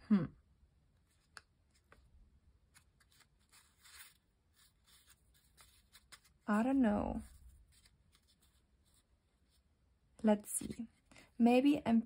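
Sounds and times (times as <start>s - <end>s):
thick paper rustling: 1.7s - 9.6s.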